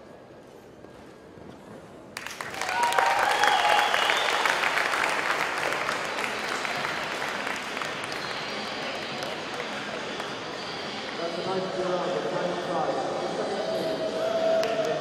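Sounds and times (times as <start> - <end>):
crowd applause: 2.2 - 11.2.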